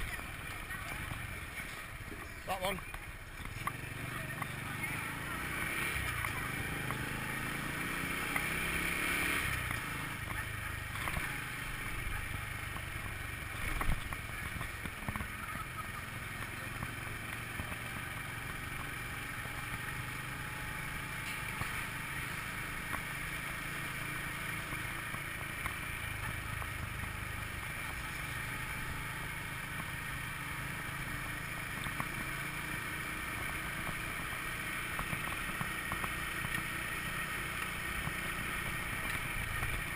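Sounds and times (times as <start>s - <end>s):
scooter engine running: 0.0s - 39.9s
wind and road noise: 0.0s - 39.9s.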